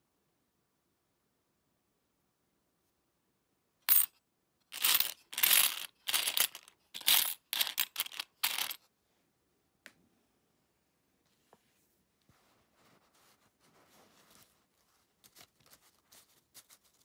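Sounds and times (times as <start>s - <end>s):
coins clinking and jingling: 3.9s - 4.1s, 4.7s - 8.8s.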